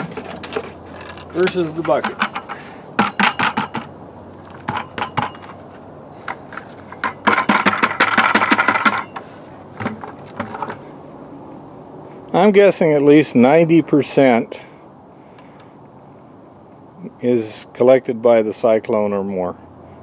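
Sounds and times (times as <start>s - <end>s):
clattering scrape of bucket: 0.0s - 3.9s, 4.6s - 10.9s
plastic buckets knocking and clicking: 0.0s - 3.9s, 4.5s - 5.6s, 6.2s - 10.8s.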